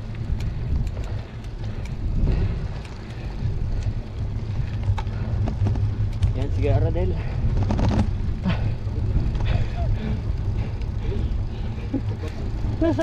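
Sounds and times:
faint ticks: 0.0s - 6.5s
wind rushing over microphone: 0.0s - 12.8s
road noise rumble: 0.0s - 13.0s.

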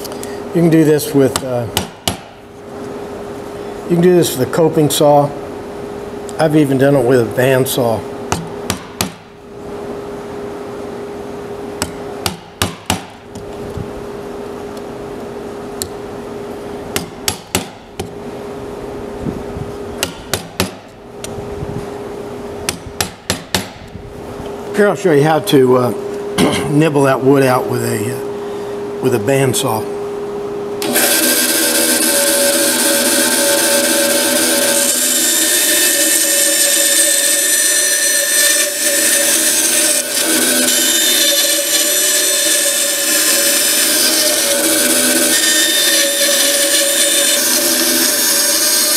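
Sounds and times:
bandsaw cutting wood: 30.8s - 48.9s.

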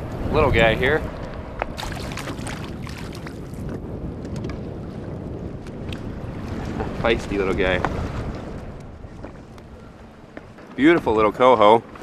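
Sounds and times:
choppy water: 0.0s - 12.0s
wind buffeting microphone: 0.0s - 12.0s.

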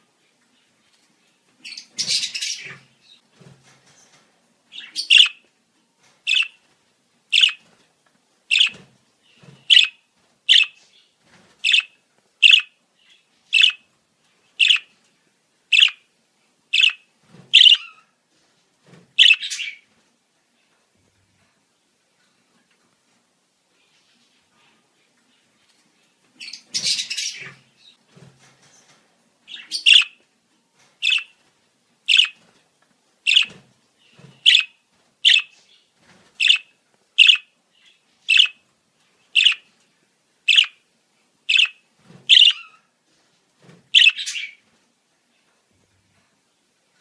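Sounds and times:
budgerigar chirping: 4.8s - 5.4s, 6.3s - 6.6s, 7.4s - 7.6s, 8.5s - 8.8s, 9.7s - 10.8s, 11.6s - 12.7s, 13.5s - 13.8s, 14.6s - 14.9s, 15.7s - 16.0s, 16.8s - 17.0s, 17.6s - 18.0s, 19.2s - 19.8s, 29.5s - 30.2s, 31.0s - 31.3s, 32.1s - 32.4s, 33.3s - 33.6s, 34.4s - 35.5s, 36.4s - 37.5s, 38.3s - 38.6s, 39.4s - 39.6s, 40.5s - 40.8s, 41.5s - 42.8s, 44.0s - 44.6s.

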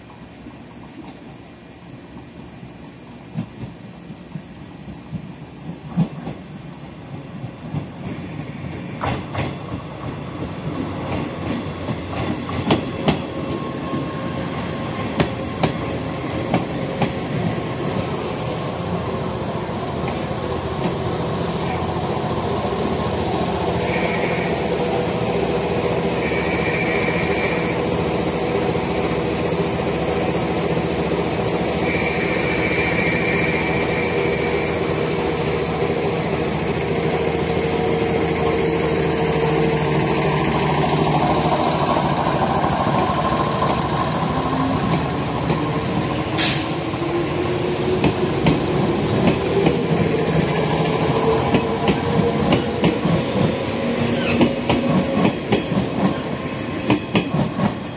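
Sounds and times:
electric train humming: 4.1s - 57.9s
wheels clacking over rail joints: 7.1s - 19.0s.

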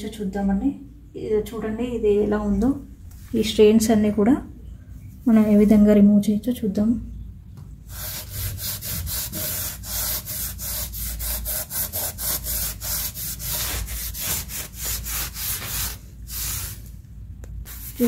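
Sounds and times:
scouring pad scrubbing tile: 7.9s - 16.9s, 17.7s - 18.0s.

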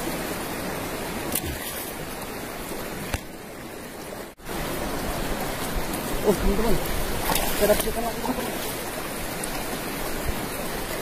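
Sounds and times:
river water over stones: 0.0s - 11.0s.

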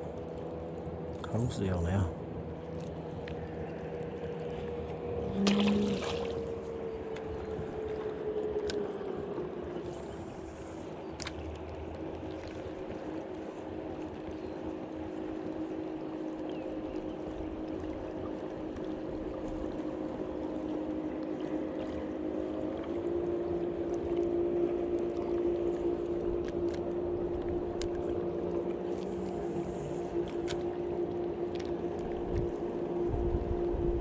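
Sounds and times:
boat motor humming: 0.0s - 34.0s
wind rumbling on microphone: 25.2s - 34.0s.

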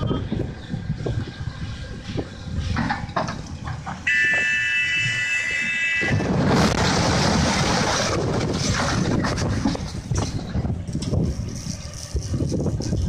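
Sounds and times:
stone breaking and rubble sliding: 6.3s - 10.5s.

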